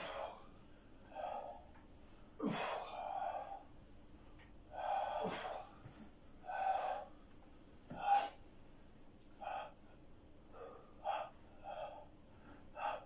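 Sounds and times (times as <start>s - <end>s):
person exhaling forcefully: 2.4s - 3.1s, 4.8s - 5.7s.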